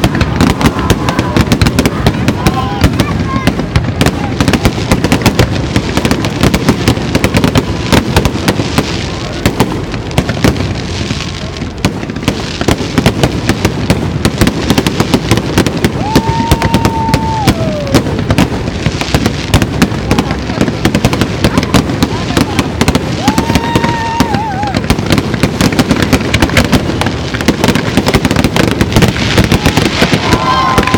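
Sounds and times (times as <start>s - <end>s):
fireworks bangs and crackles: 0.0s - 30.9s
firework whistle: 15.8s - 18.2s, 23.0s - 24.9s, 29.4s - 30.9s.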